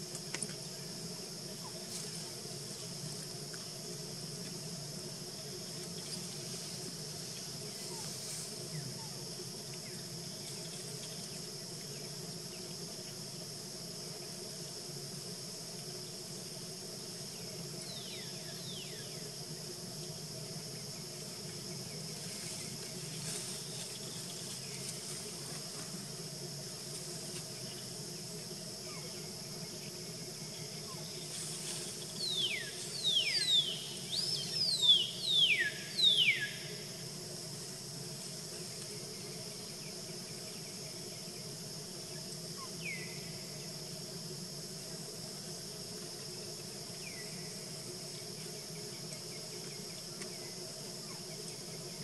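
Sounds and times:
insect chorus: 0.0 - 52.0.

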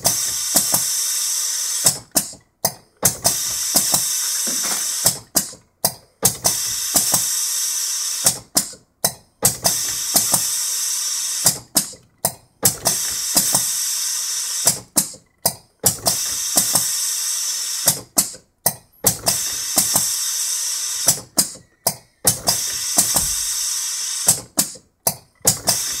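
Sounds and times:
mechanical clicks and clacks: 1.8 - 7.3, 8.2 - 10.5, 11.4 - 13.8, 14.6 - 17.0, 17.8 - 20.2, 21.0 - 26.0
machine whirring: 19.0 - 26.0.

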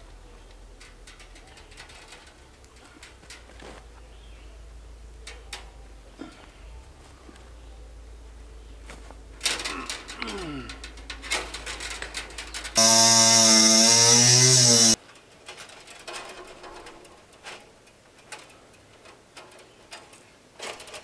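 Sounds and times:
wire clicking and scraping: 0.4 - 4.0, 9.4 - 21.0
loud steady buzzing tone: 12.8 - 15.0.

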